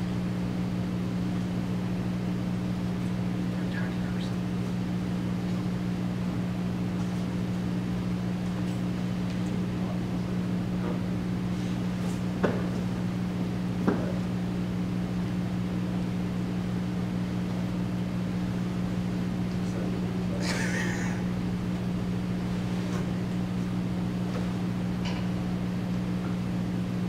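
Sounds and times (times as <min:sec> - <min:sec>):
low room hum: 0:00.0 - 0:27.0.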